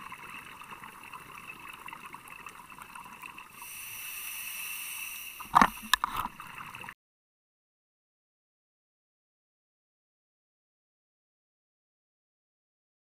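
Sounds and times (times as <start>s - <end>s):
underwater hiss with crackling: 0.0s - 6.9s
brighter higher hiss: 3.6s - 6.0s.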